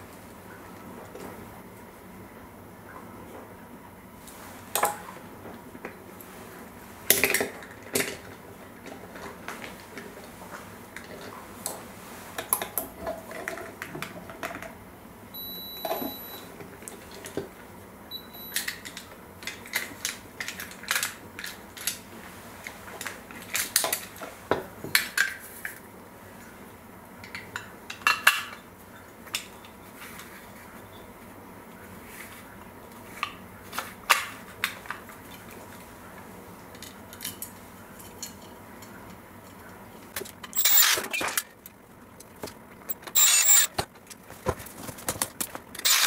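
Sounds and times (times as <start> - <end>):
metal parts clicking and clinking: 40.2 - 41.7, 42.9 - 44.2, 45.2 - 46.0.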